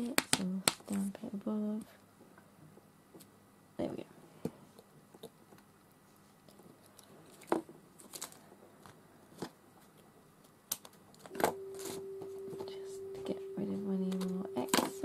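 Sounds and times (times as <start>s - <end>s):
paper and card crinkling: 7.2s - 8.4s
steady tone: 11.3s - 15.0s.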